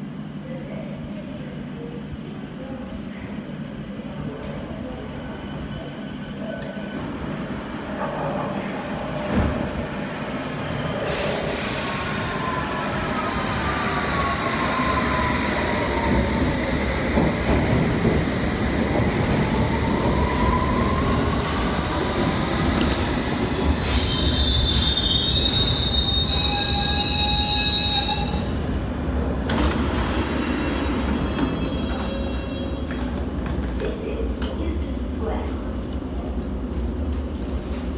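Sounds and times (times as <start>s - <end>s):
train rumble: 6.4s - 26.6s
high-pitched brake squeal: 23.5s - 28.5s.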